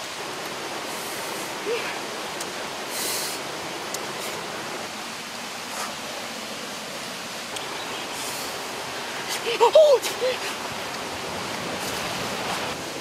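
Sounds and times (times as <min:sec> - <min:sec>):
higher hiss: 0:00.0 - 0:06.3, 0:07.4 - 0:11.1
stream running over rocks: 0:00.0 - 0:13.0.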